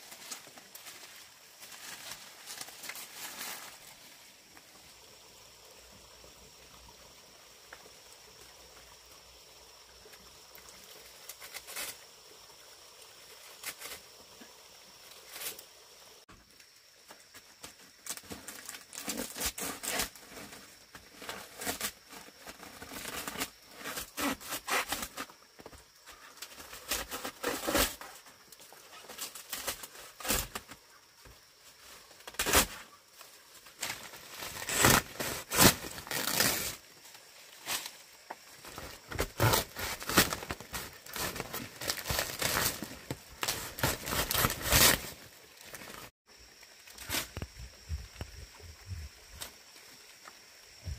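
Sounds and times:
dry leaves rustling and crackling: 0.0s - 4.2s, 33.6s - 38.0s, 38.7s - 46.1s.

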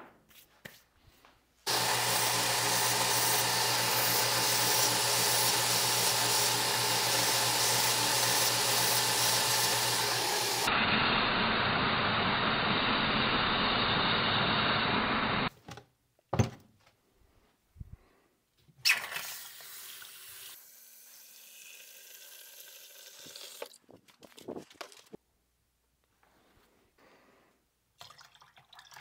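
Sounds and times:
belt sander grinding metal: 1.7s - 10.7s
water running into pitcher: 18.8s - 23.8s, 28.0s - 29.0s.

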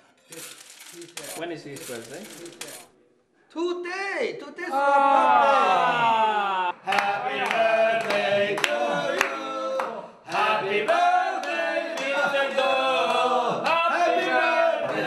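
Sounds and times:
voices singing together: 5.8s - 15.0s.

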